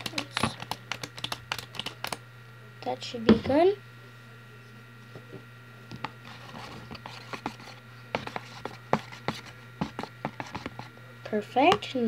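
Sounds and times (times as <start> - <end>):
steady low hum: 0.0 - 12.0
spoon scraping plastic bowl: 6.0 - 10.9.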